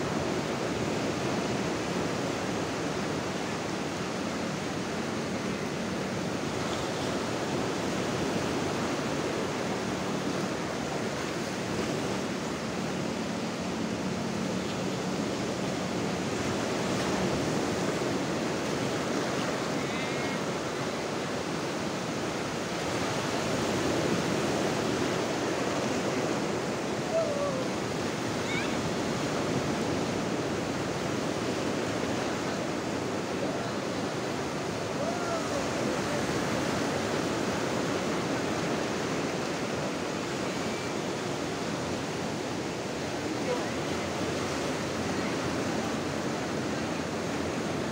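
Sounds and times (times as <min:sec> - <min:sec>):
waves breaking on beach: 0:00.0 - 0:47.9
faint distant shouts: 0:27.0 - 0:28.9, 0:34.9 - 0:36.2.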